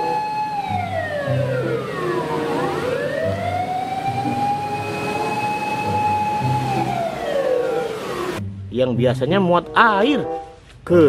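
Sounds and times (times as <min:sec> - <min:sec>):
fire engine siren wailing: 0:00.0 - 0:08.4.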